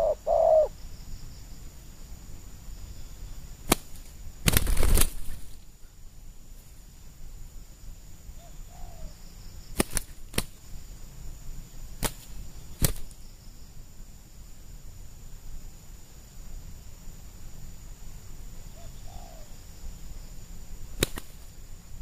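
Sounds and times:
dove cooing: 0.0s - 0.8s, 8.4s - 9.2s, 18.7s - 19.5s
sharp wing slaps: 3.6s - 5.6s, 9.7s - 10.7s, 12.0s - 13.2s, 21.0s - 21.6s
wings flapping: 3.6s - 5.7s, 9.7s - 10.6s, 12.0s - 13.2s, 21.0s - 21.6s.

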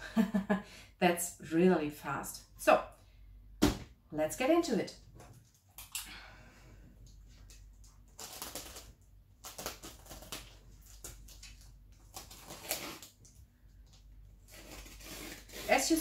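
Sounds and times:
plastic wrap rustling: 7.4s - 16.0s.

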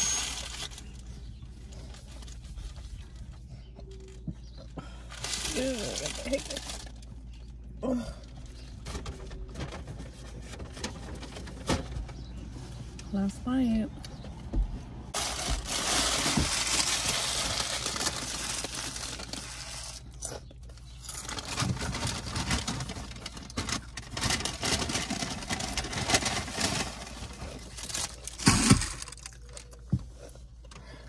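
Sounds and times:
chip bag rustling and tearing: 0.0s - 1.0s, 5.2s - 7.1s, 15.2s - 20.3s, 21.1s - 29.6s.

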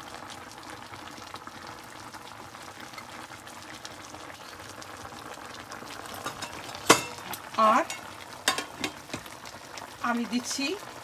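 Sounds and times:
food bubbling and sizzling: 0.0s - 11.0s.

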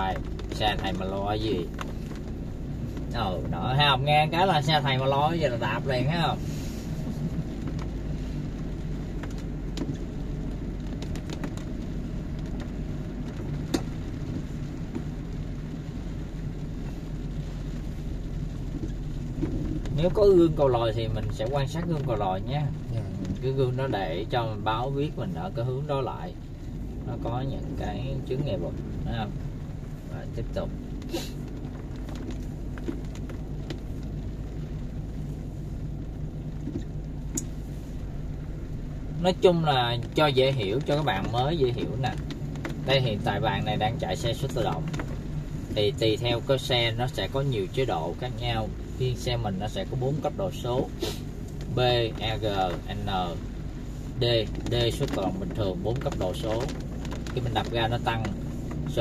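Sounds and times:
car engine and tyres on wet road: 0.0s - 59.0s
rain ticking on car: 0.0s - 59.0s
light ticks: 7.3s - 20.1s, 36.1s - 37.6s.

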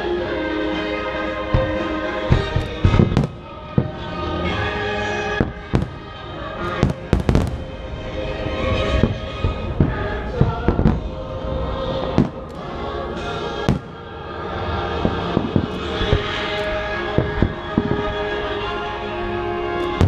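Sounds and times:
music soundtrack: 0.0s - 20.0s
fireworks bangs: 1.4s - 20.0s.

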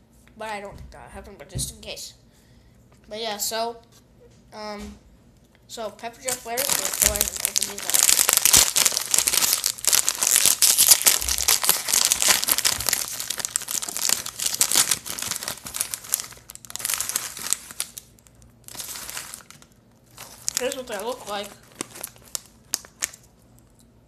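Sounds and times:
plastic snack bag crinkling: 6.2s - 23.4s.

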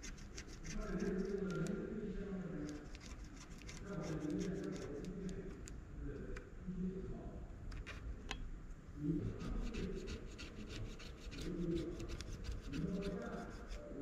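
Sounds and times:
cotton swab scratching: 0.0s - 1.8s, 2.6s - 5.6s, 9.2s - 14.0s.

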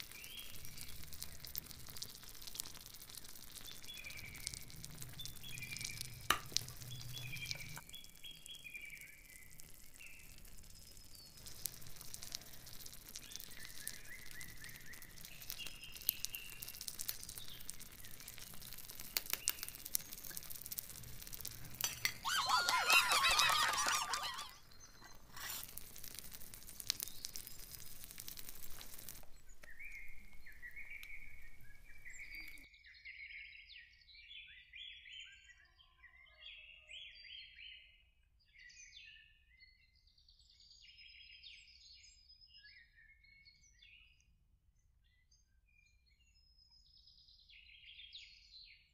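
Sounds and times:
birds chirping: 3.6s - 20.5s, 21.8s - 25.8s, 27.0s - 32.6s
metal spoon scraping a pot: 21.6s - 22.2s.

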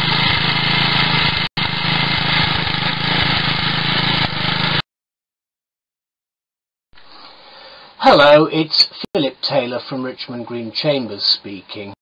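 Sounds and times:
small petrol engine running: 0.0s - 4.8s.

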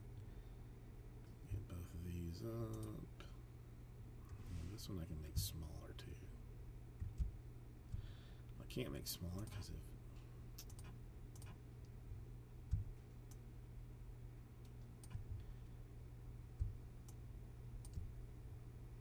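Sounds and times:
steady low hum: 0.0s - 19.0s
computer mouse clicks: 2.6s - 3.0s, 9.3s - 9.6s, 10.6s - 12.0s, 14.6s - 15.4s, 17.8s - 18.1s
keyboard clicks: 2.6s - 3.0s, 10.6s - 11.6s, 14.6s - 15.4s.

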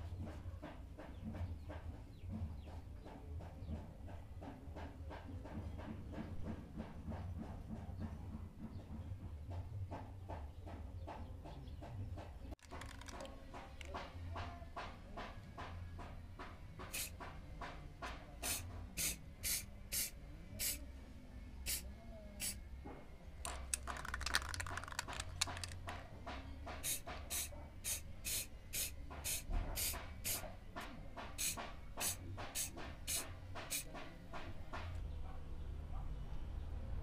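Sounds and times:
aerosol spray can spraying: 16.9s - 17.2s, 18.4s - 20.8s, 23.5s - 25.9s, 26.8s - 30.4s, 31.4s - 33.9s.

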